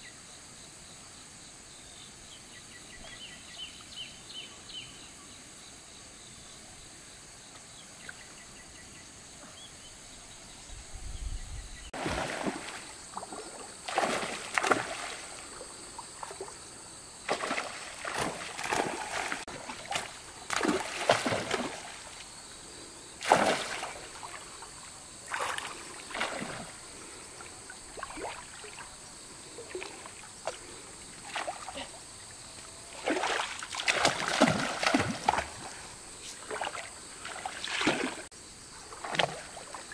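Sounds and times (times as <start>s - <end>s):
water splashing and sloshing: 12.0s - 22.4s, 23.2s - 39.9s.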